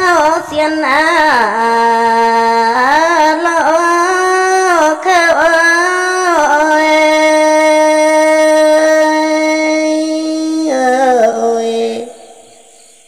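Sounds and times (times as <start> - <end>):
woman singing unaccompanied folk song: 0.0 - 12.5.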